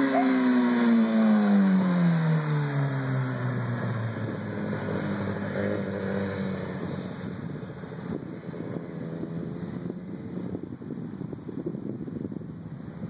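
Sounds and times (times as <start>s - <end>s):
motorcycle engine passing: 0.0s - 7.2s.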